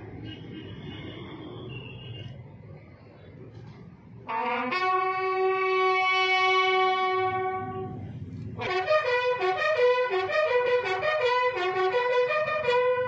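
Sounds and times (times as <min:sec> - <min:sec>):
bugle call: 0:04.3 - 0:07.9, 0:08.6 - 0:13.0.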